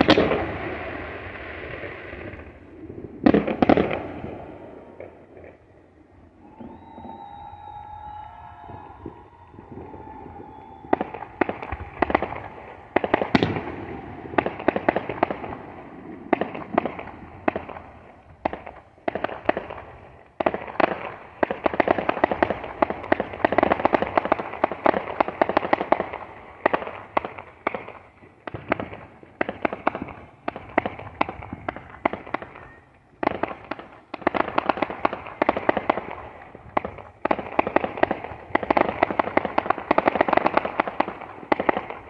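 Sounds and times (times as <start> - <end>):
fireworks popping and cracking: 0.0 - 5.8, 6.4 - 42.0.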